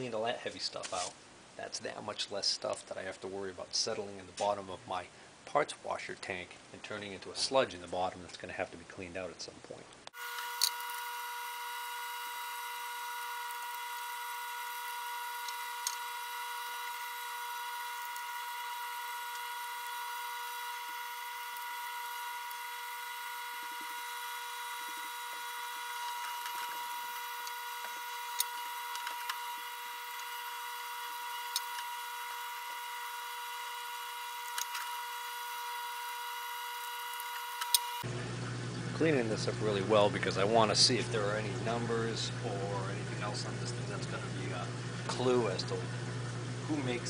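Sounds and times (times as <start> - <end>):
steady high-pitched whine: 10.2 - 38.4
sharp clicks: 36.8 - 38.0.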